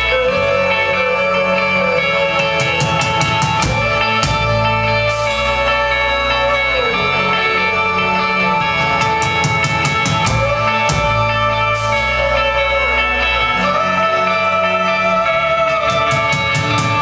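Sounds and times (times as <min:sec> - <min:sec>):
electric guitar: 0:00.0 - 0:17.0
drum kit: 0:02.4 - 0:05.8, 0:08.8 - 0:12.3, 0:15.9 - 0:17.0.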